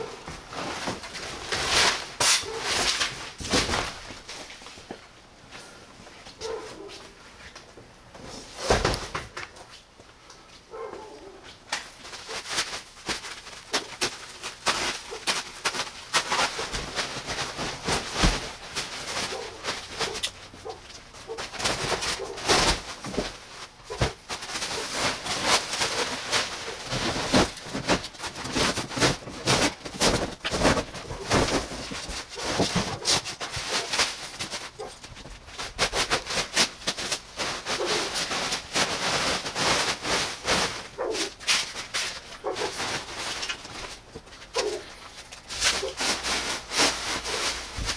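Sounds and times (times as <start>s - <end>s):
plastic wrap crackling and crinkling: 0.0s - 4.9s, 11.2s - 47.9s
plastic film squeaking: 12.0s - 47.9s.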